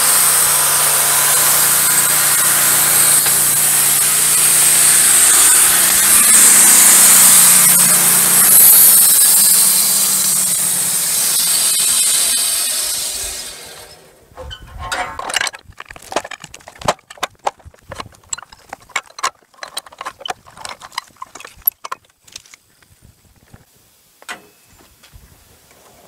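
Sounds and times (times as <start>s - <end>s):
wooden knocks and scrapes: 14.4s - 23.6s.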